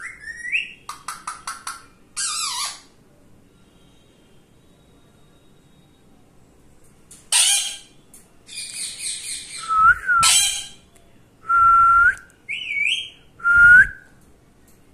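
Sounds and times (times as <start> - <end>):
parakeet screeching: 2.2 - 2.9, 7.3 - 9.6, 10.2 - 10.8
parakeet raspy chatter: 7.3 - 7.9
parakeet whistled notes: 8.8 - 10.8.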